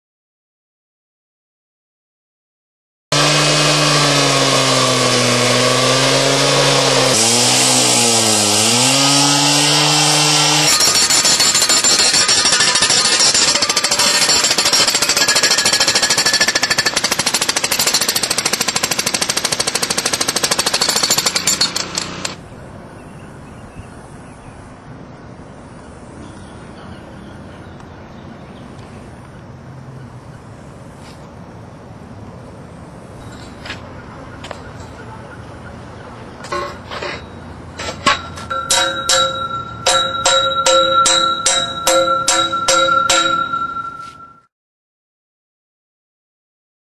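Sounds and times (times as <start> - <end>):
jackhammer pounding: 3.1 - 22.4, 36.4 - 43.9.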